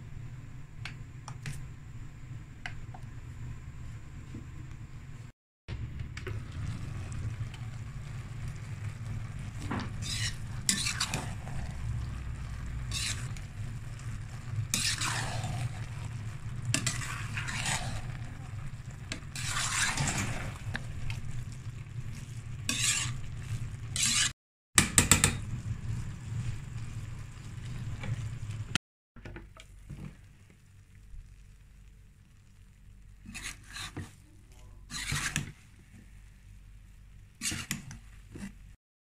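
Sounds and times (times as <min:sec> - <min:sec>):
spoon scraping metal pot: 0:09.5 - 0:11.8, 0:12.4 - 0:13.5, 0:14.6 - 0:15.9, 0:16.6 - 0:18.3, 0:19.1 - 0:21.1, 0:22.7 - 0:24.3, 0:33.3 - 0:34.2, 0:34.8 - 0:35.6, 0:37.4 - 0:38.6.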